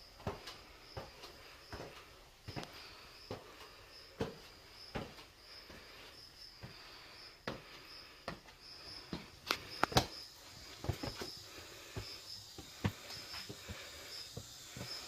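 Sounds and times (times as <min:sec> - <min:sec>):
footsteps on stone steps: 0:00.0 - 0:15.0.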